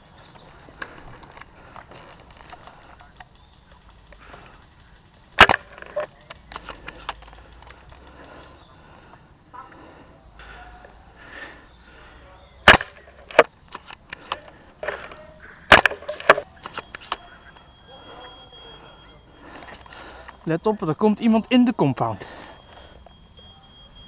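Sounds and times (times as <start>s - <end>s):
airsoft gun shots: 5.4s - 5.8s, 12.6s - 13.4s.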